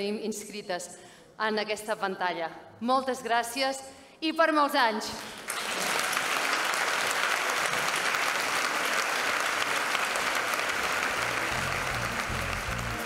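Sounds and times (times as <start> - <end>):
audience applauding: 5.3 - 13.0
music with low bass: 11.5 - 13.0.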